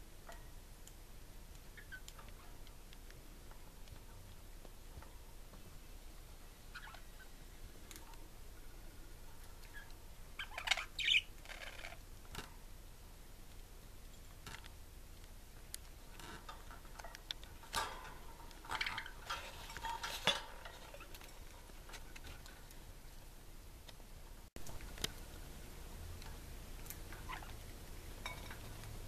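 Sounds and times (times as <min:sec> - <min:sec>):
budgies chirping: 0:06.7 - 0:07.3, 0:09.6 - 0:12.0.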